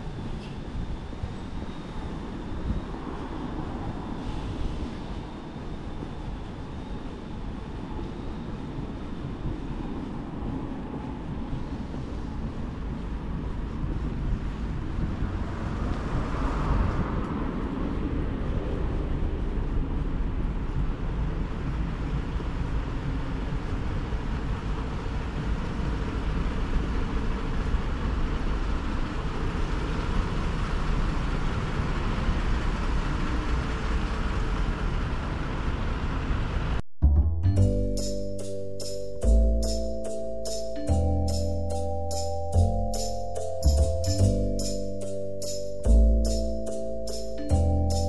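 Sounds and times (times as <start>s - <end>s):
traffic rumble: 0.0s - 48.0s
marimba-like music: 37.1s - 48.0s.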